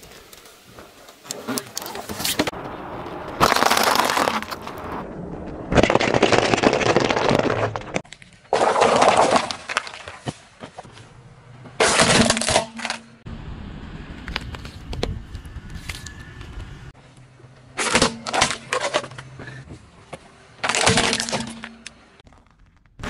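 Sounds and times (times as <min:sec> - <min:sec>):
scattered cracks: 0:03.0 - 0:10.3
tyres crunching brittle objects: 0:03.4 - 0:05.0, 0:05.6 - 0:10.8, 0:20.6 - 0:23.0.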